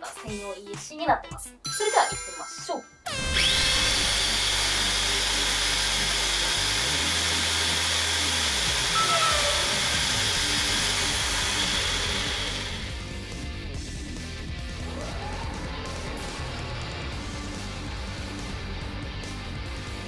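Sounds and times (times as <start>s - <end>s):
electric motor high whine: 3.1s - 13.1s.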